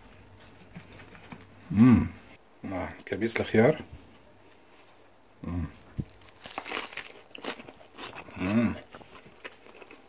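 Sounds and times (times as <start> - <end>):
person humming: 1.7 - 2.3, 5.4 - 6.0
chewing crispy fried chicken: 5.9 - 10.0.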